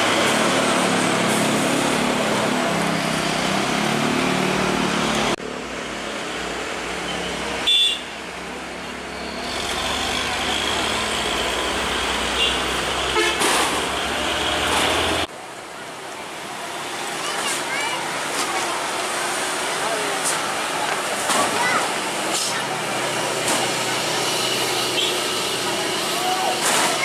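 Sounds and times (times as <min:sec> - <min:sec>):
street traffic noise: 0:00.0 - 0:27.0
crowd of voices: 0:15.5 - 0:27.0.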